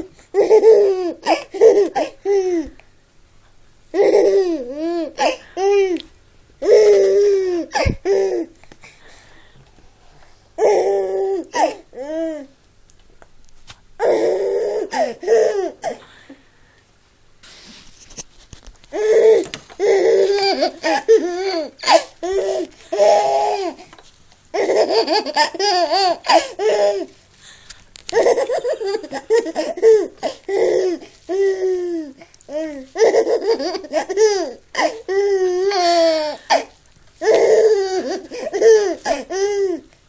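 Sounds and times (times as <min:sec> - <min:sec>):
baby laughing and squealing: 0:06.6 - 0:08.5, 0:19.0 - 0:23.8, 0:24.6 - 0:27.1, 0:28.1 - 0:39.8.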